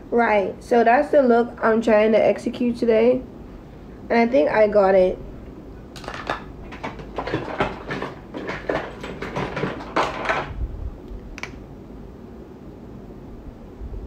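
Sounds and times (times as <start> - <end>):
low room hiss: 0.0 - 7.2, 9.0 - 14.0
handling knocks and rustles: 6.0 - 10.6.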